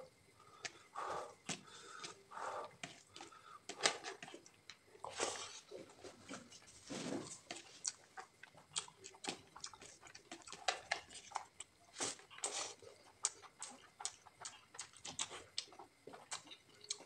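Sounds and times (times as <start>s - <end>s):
breaths through the nose: 0.4s - 3.8s
chewing and mouth clicks: 1.4s - 17.0s.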